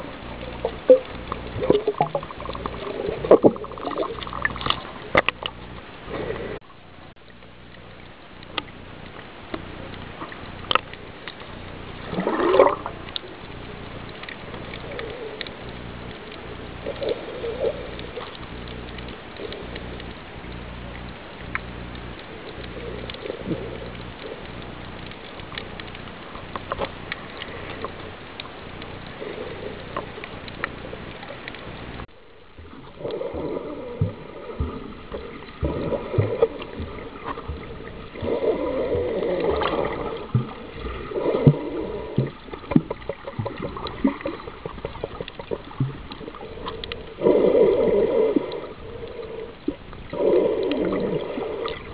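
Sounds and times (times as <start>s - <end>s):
gurgling: 0.0s - 5.5s, 12.0s - 13.2s, 32.6s - 51.9s
swirl of bubbling: 0.0s - 6.6s, 11.9s - 13.2s, 32.6s - 51.9s
underwater low hum: 0.0s - 51.9s.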